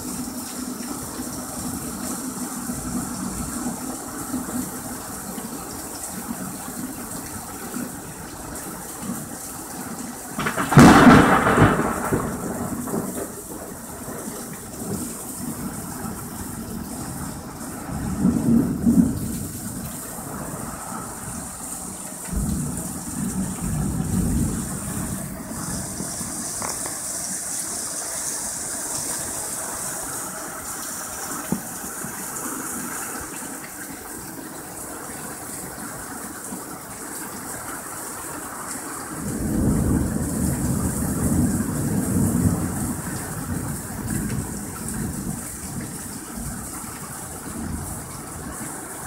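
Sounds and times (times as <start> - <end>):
heavy rain pouring: 0.0 - 49.0
thunder rumbling: 10.4 - 27.2, 39.2 - 48.6.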